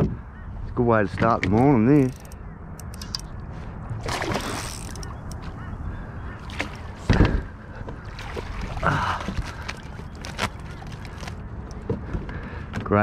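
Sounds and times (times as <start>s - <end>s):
water splashing: 4.0s - 5.3s, 6.3s - 11.4s.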